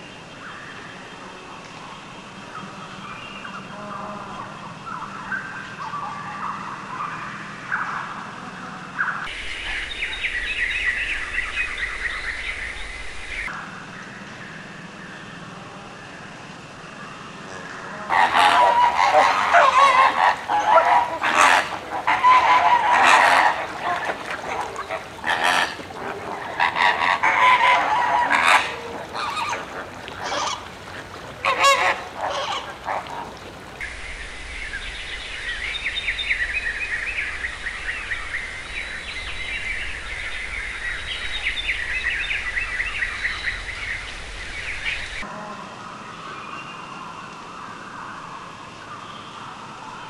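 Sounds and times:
flamingos honking: 0:17.5 - 0:33.8.

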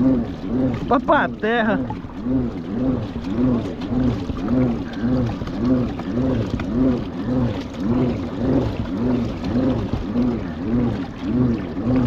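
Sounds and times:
pedal gearbox and propeller whirring: 0:00.0 - 0:12.0.

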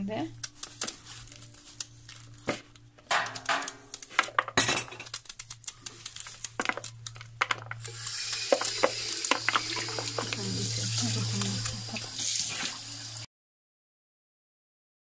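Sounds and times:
knife cutting cabbage: 0:00.4 - 0:04.4
tap running: 0:06.1 - 0:13.2
pieces dropping into plastic bowl: 0:06.6 - 0:07.8.

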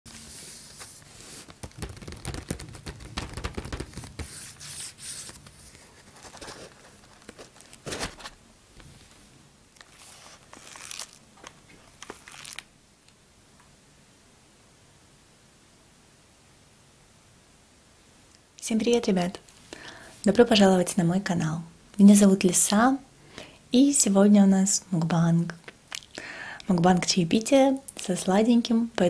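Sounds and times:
cardboard crinkling and tearing: 0:00.2 - 0:08.4, 0:09.8 - 0:12.7.

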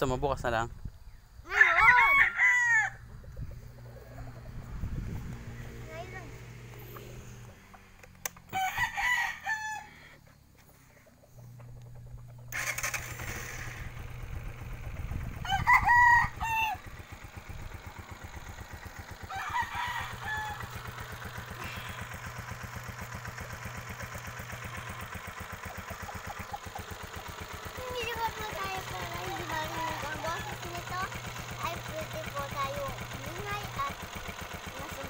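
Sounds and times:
rooster crowing: 0:01.5 - 0:03.2, 0:08.5 - 0:10.3, 0:15.4 - 0:17.0, 0:19.2 - 0:21.0
motorcycle engine idling: 0:02.4 - 0:35.0.

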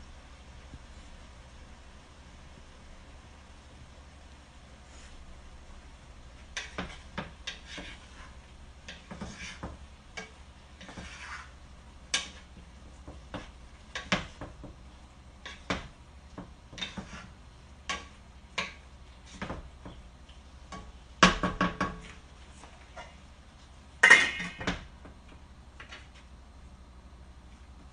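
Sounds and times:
utensil scraping a frying pan: 0:06.3 - 0:23.3, 0:24.0 - 0:24.9.

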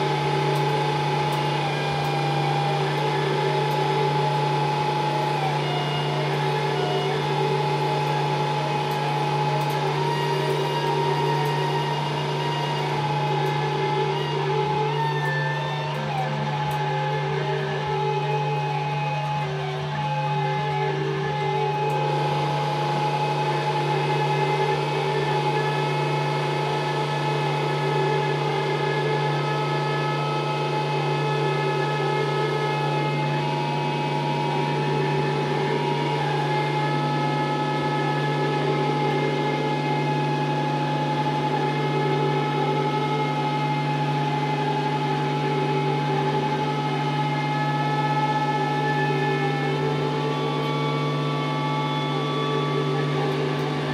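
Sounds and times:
drone music sustained tones: 0:00.0 - 0:53.9.

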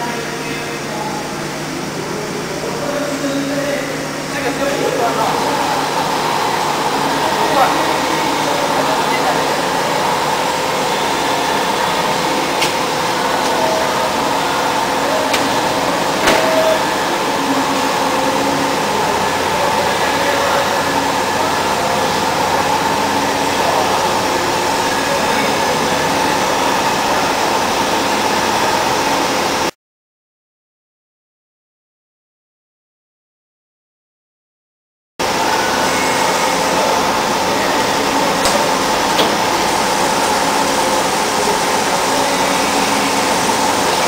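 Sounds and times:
machine mechanical whir: 0:04.0 - 0:29.7, 0:35.2 - 0:44.0.

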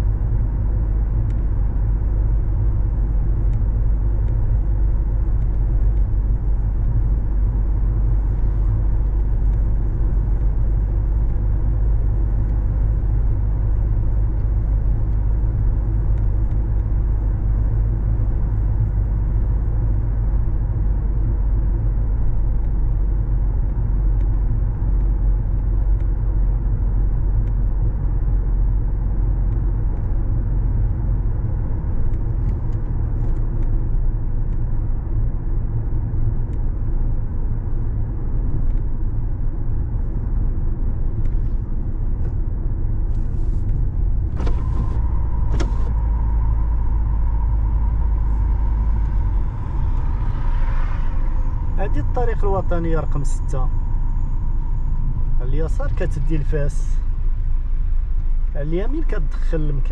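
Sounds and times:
car driving on a road: 0:00.0 - 0:59.9.

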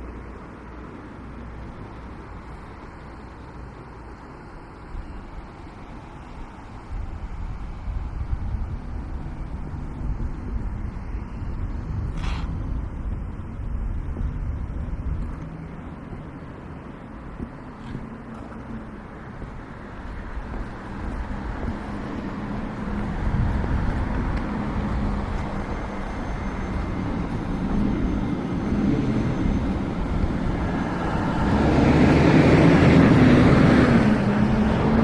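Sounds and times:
vehicle passing by: 0:20.0 - 0:35.0.

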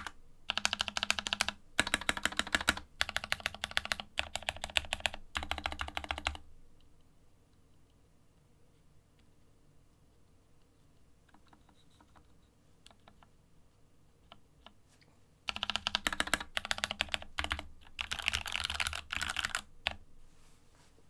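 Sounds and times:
mechanical keyboard typing: 0:00.0 - 0:06.4, 0:15.5 - 0:20.0.

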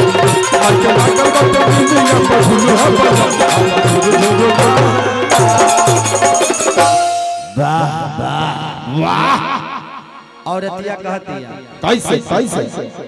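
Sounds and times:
fast hand drum rhythm: 0:00.0 - 0:07.3
folk band playing: 0:00.0 - 0:07.6.

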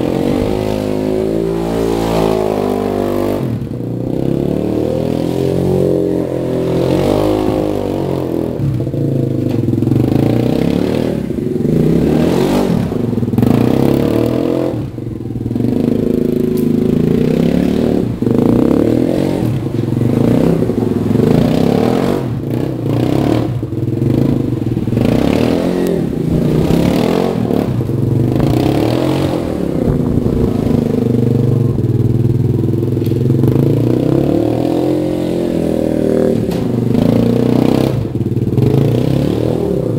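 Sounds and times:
quad engine revving: 0:00.0 - 0:39.9.

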